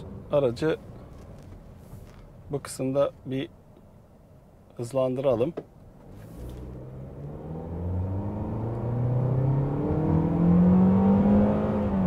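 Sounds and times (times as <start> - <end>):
car engine accelerating hard: 6.1 - 12.0.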